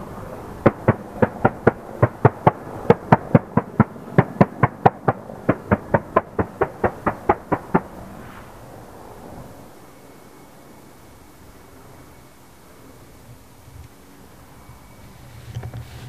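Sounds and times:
helicopter rotor blade slap: 0.0s - 9.6s
helicopter engine rumble: 0.0s - 16.0s.

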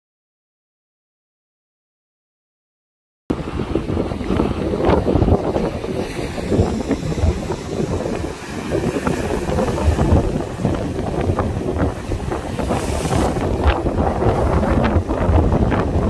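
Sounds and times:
gusty wind on microphone: 3.3s - 16.0s
ocean surf rushing: 3.3s - 16.0s.

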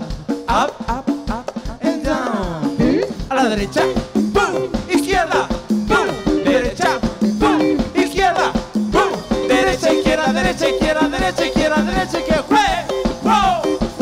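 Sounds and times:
cumbia band music: 0.0s - 14.0s.

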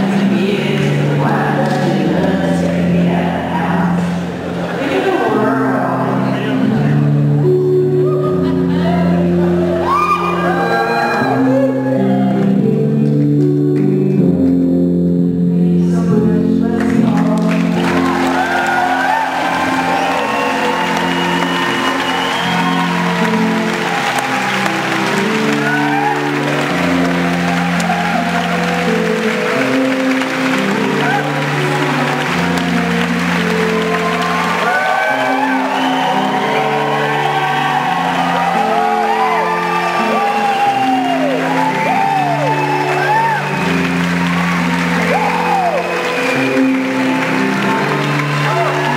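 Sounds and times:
live music held chords: 0.0s - 48.9s
audience cheering and applauding: 8.0s - 13.6s, 16.8s - 48.9s
whoops: 9.7s - 12.5s, 18.0s - 28.8s, 33.7s - 43.7s, 44.3s - 46.9s.

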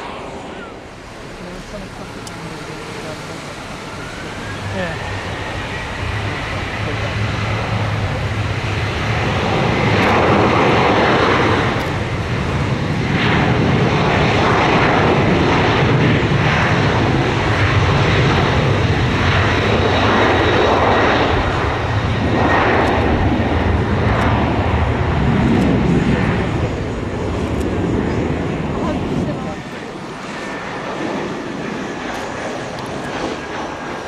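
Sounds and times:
jet engines at high power: 0.0s - 34.0s.

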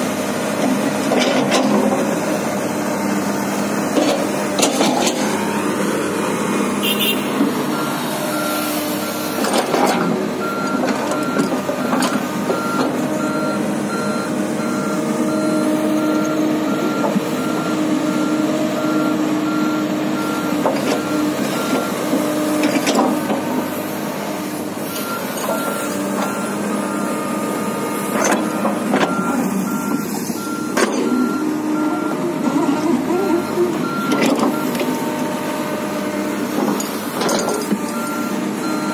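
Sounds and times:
excavator diesel engine running: 0.0s - 38.9s
travel alarm beeping: 28.5s - 32.2s.

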